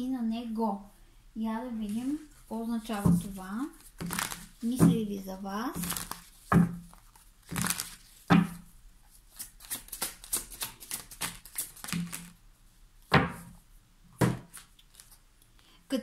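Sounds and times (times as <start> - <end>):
cards being shuffled: 1.9 - 5.0, 5.8 - 8.6, 9.3 - 12.4, 14.2 - 15.2
cards slapped on table: 14.2 - 14.7.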